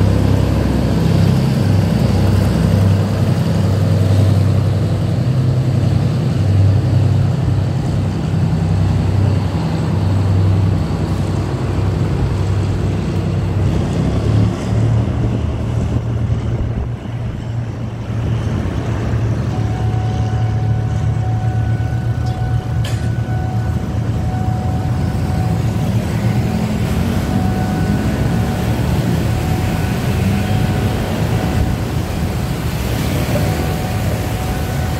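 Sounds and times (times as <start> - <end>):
motorcycle and car engines: 0.0 - 34.9
passing train rumble: 0.0 - 34.9.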